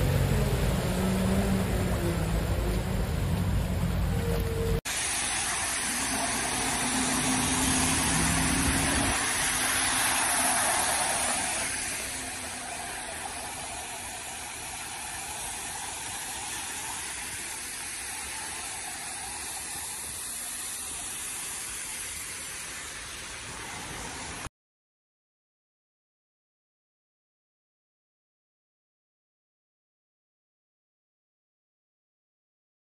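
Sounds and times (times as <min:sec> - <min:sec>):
engine hum: 0:00.0 - 0:19.4
tyres spraying water: 0:00.0 - 0:24.5
wash of water: 0:00.0 - 0:24.5.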